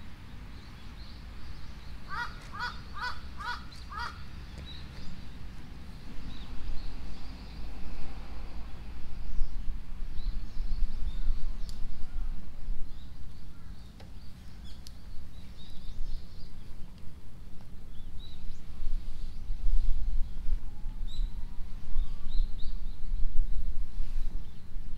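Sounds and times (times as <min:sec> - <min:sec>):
small birds chirping: 0:00.4 - 0:07.7, 0:12.9 - 0:19.4
constant low rumble: 0:08.6 - 0:24.9.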